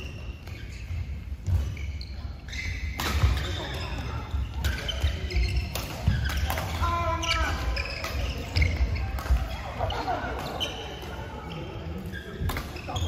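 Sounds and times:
rackets hitting shuttlecock: 0.0 - 1.9, 2.5 - 13.0
shoes squeaking on floor: 0.0 - 13.0.

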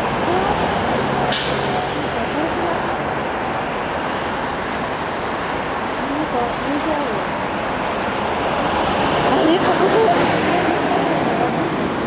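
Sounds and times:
bus engine hum: 0.0 - 12.0
road traffic: 0.0 - 12.0
bus air brakes hissing: 1.3 - 2.5.

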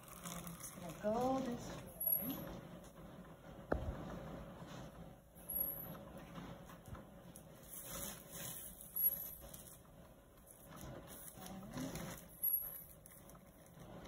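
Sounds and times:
plastic cover rustling: 0.0 - 2.5, 6.2 - 14.0.

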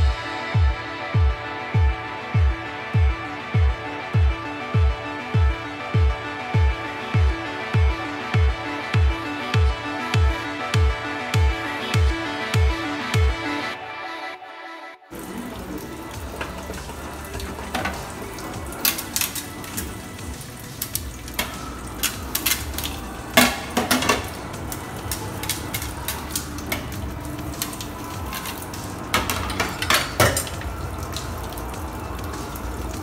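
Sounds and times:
tap water running: 15.1 - 33.0
dishes clattering in a sink: 16.3 - 19.9, 21.4 - 24.5, 28.3 - 30.7.

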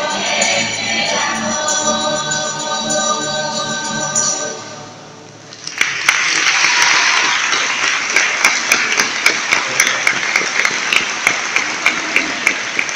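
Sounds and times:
audience applauding: 5.5 - 12.9
nearby steady hand clapping: 5.6 - 12.9.

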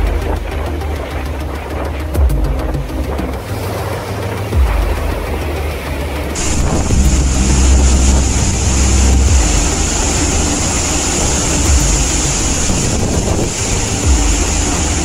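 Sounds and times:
storm wind and heavy rain: 0.0 - 15.0
wind buffeting the microphone: 6.4 - 15.0.

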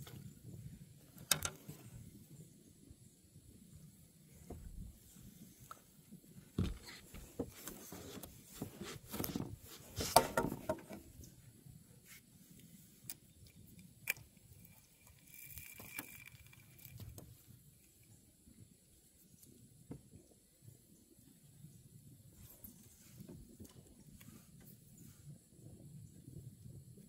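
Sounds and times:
fishing gear clicking and knocking: 1.2 - 1.7.

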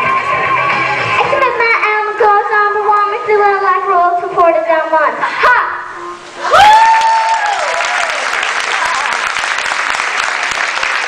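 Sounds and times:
audience applauding: 6.4 - 11.0.

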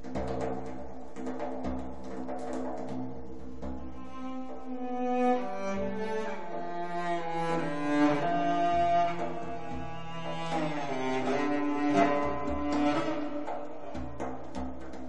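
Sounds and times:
cello music from a record: 3.8 - 14.9.

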